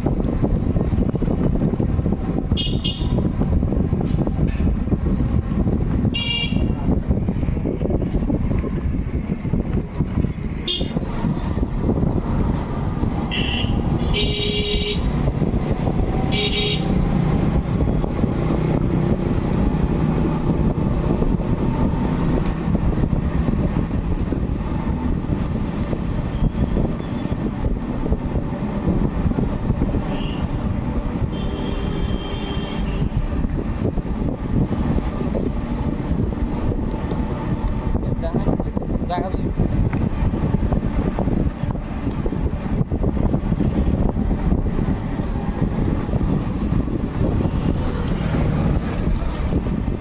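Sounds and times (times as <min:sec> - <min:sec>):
traffic rumble: 0:00.0 - 0:50.0
vehicle horns honking: 0:02.5 - 0:03.3, 0:06.1 - 0:06.8, 0:10.6 - 0:11.0, 0:13.3 - 0:15.2, 0:16.3 - 0:17.0, 0:30.1 - 0:30.6, 0:31.2 - 0:33.2.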